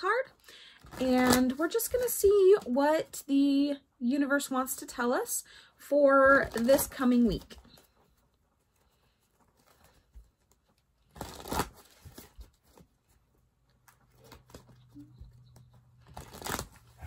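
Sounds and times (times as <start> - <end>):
cards being shuffled: 9.6 - 13.2, 13.8 - 17.0.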